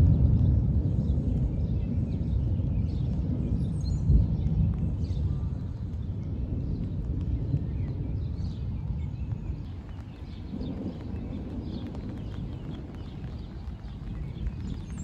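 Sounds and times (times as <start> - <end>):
distant thunder rolling: 9.5 - 15.0.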